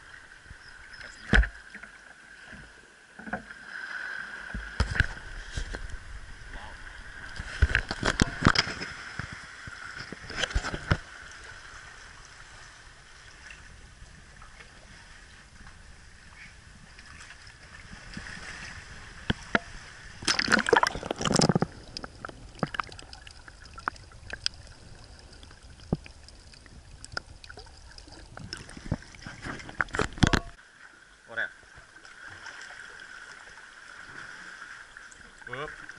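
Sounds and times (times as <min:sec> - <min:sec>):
water lapping against kayak and rocks: 0:00.0 - 0:35.9
small splashes and knocks: 0:04.4 - 0:06.0, 0:07.3 - 0:11.4, 0:16.9 - 0:30.6, 0:31.7 - 0:35.9.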